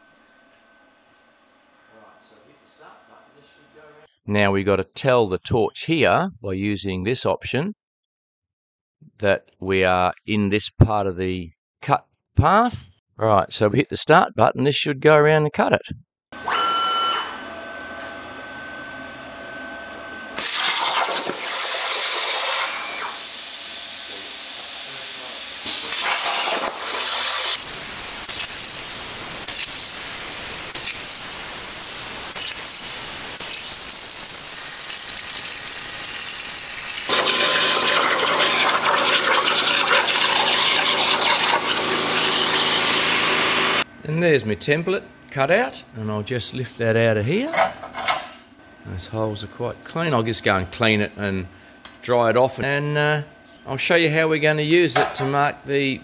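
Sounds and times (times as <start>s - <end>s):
plasma cutter hissing: 20.4s - 43.8s.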